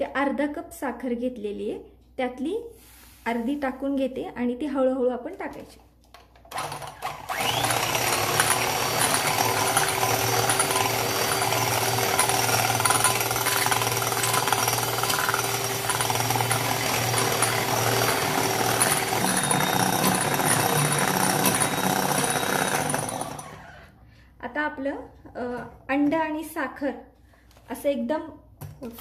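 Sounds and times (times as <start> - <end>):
electric hand mixer whisking: 6.5 - 23.9.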